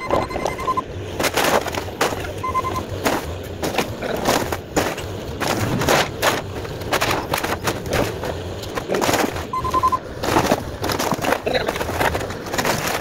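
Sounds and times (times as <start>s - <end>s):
high beeps: 0.0s - 0.9s, 2.4s - 2.9s, 9.5s - 10.0s
excavator engine: 0.0s - 13.0s
wood cracking and splintering: 1.1s - 13.0s.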